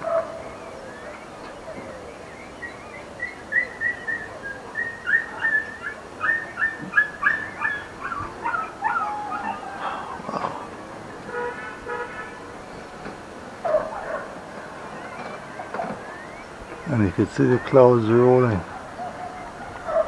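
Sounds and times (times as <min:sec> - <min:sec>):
dog yelping and whining: 0:04.8 - 0:10.0.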